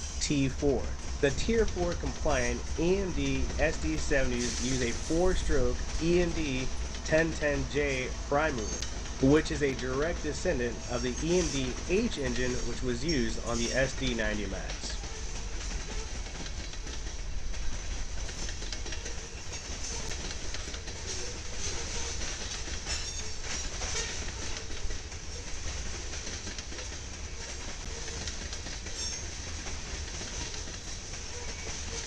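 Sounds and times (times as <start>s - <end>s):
diesel locomotive engine rumble: 0.0s - 32.0s
steel wheels hissing on rail: 0.0s - 32.0s
wheels clicking over rail joints: 0.0s - 32.0s.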